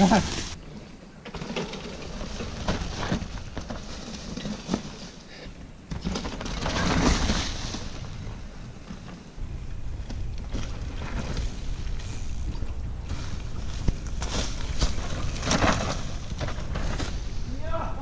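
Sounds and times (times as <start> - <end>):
bikes rattling: 0.0 - 18.0
tyres crunching over dirt: 5.9 - 17.4.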